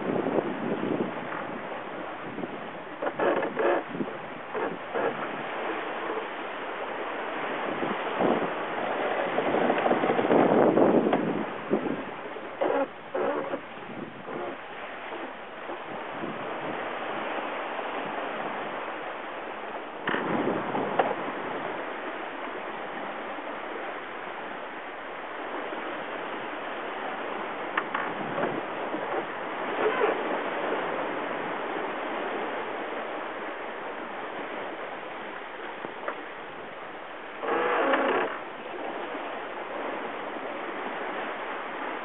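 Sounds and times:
sea water rushing past yacht: 0.0 - 42.0
wind: 0.0 - 42.0.

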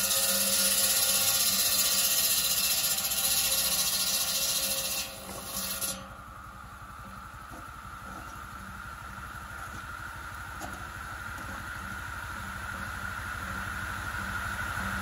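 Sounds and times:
circular saw cutting log: 0.0 - 8.8
low steady pulsing: 5.0 - 15.0.

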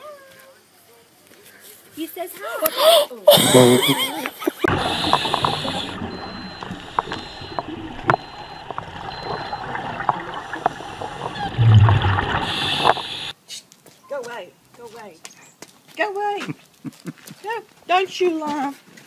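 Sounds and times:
underwater water noise: 4.6 - 13.4
low rumble: 4.7 - 13.3
regulator bubbles hissing and gurgling: 4.7 - 13.4.

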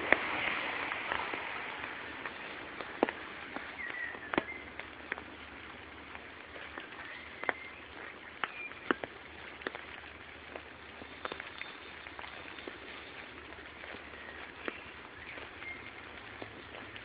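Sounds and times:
background hiss: 0.0 - 17.0
water drips from leaves: 0.0 - 17.0
bird chirps: 3.6 - 4.9, 6.8 - 9.0, 11.0 - 16.4.

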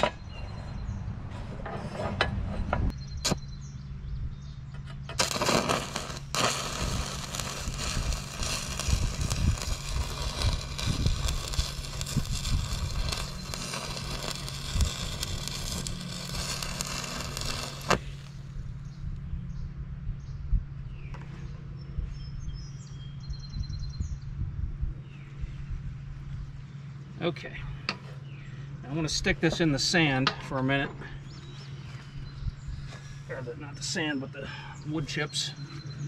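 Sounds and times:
welding arc crackling: 5.2 - 18.4.

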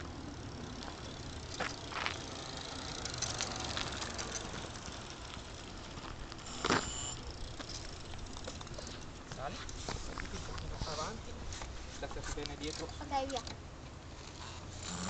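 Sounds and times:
electric bicycle rattling past: 0.0 - 9.5.

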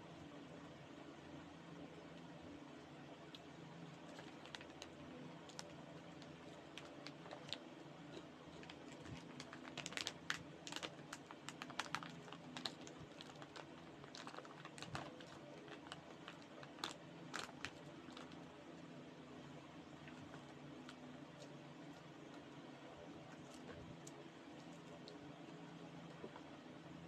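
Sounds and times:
faint steady hum: 0.0 - 27.0
plastic snack bag crinkling: 4.0 - 18.5, 20.0 - 22.4.

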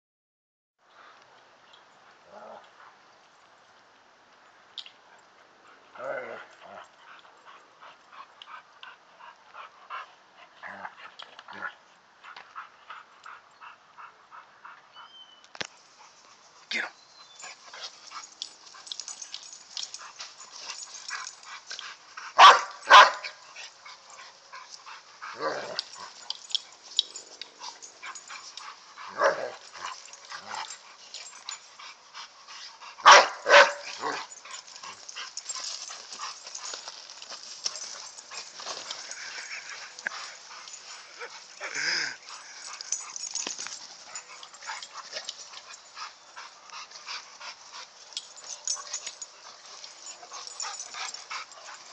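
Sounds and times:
dogs barking and yipping: 15.6 - 51.9.

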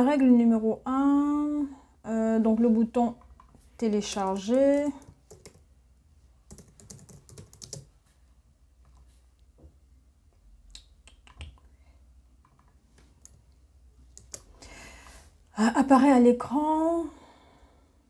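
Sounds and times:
typing on computer keyboard: 4.1 - 5.7, 6.5 - 7.9, 14.1 - 14.6.

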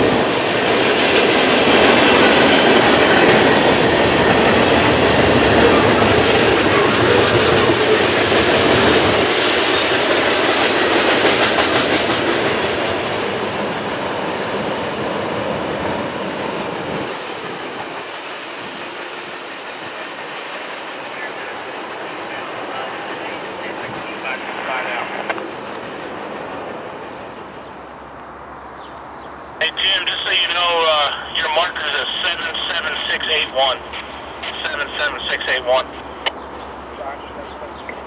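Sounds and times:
train wheels rumbling on rail: 0.0 - 29.6.

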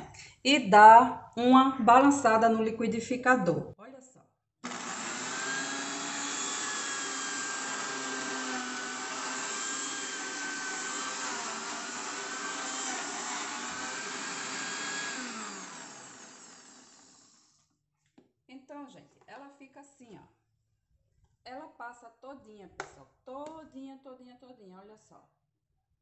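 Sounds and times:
blender motor grinding nuts: 4.6 - 17.7.

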